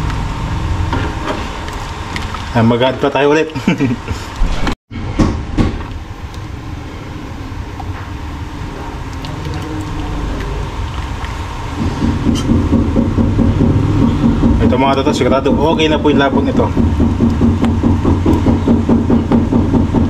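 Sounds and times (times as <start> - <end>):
steady low rumble: 6.0 - 20.0.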